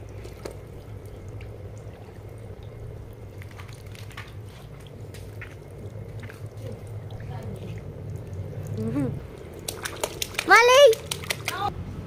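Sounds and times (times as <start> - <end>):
sprinkler water spattering on paving: 0.0 - 11.7.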